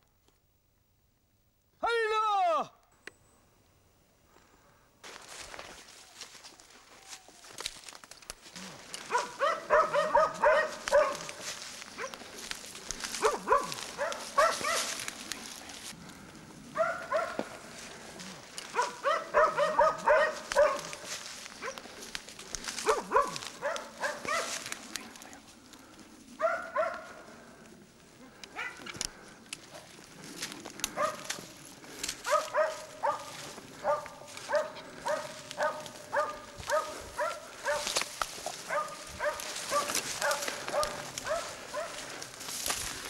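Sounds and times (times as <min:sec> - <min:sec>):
brush rustling: 0:05.0 - 0:43.0
dogs barking: 0:08.9 - 0:12.3, 0:13.0 - 0:15.7, 0:16.7 - 0:22.0, 0:22.6 - 0:25.1, 0:26.4 - 0:27.3, 0:28.5 - 0:29.0, 0:30.8 - 0:42.3.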